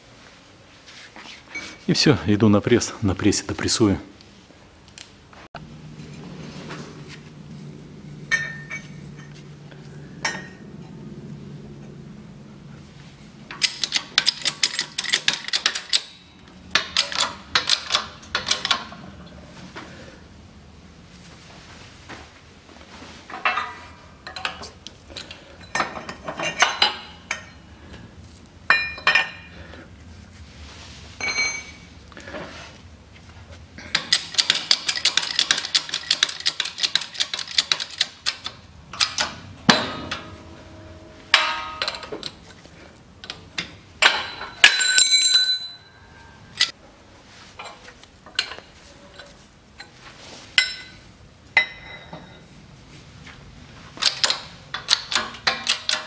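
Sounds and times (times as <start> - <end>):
metallic ring: 8.1 - 9.4, 10.1 - 11.0, 28.7 - 29.6, 31.2 - 32.0, 39.0 - 42.6, 44.0 - 46.8, 50.6 - 52.6
steel tooling clinking on metal: 33.9 - 42.4, 44.0 - 46.8.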